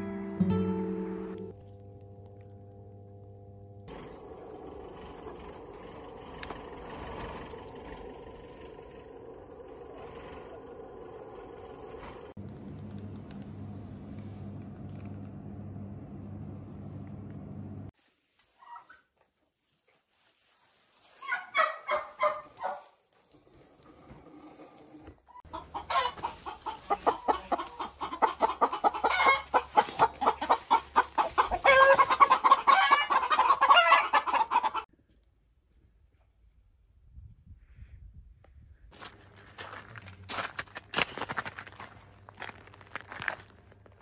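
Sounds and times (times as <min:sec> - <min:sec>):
low hum: 0:00.0 - 0:17.9
poultry clucking and calling: 0:21.2 - 0:22.9, 0:25.4 - 0:34.9.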